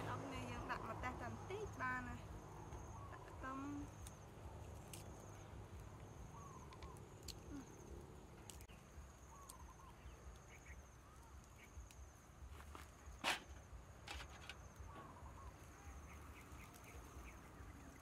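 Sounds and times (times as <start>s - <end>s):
soft bird chirps: 1.6s - 12.1s, 14.6s - 18.0s.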